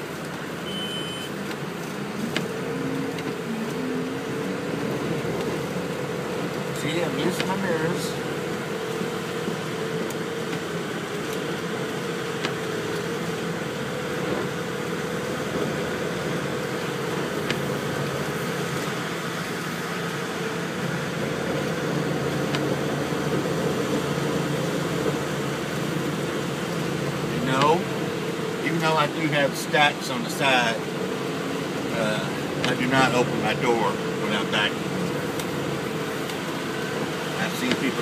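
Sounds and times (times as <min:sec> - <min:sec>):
diesel engine idling: 0:00.0 - 0:38.0.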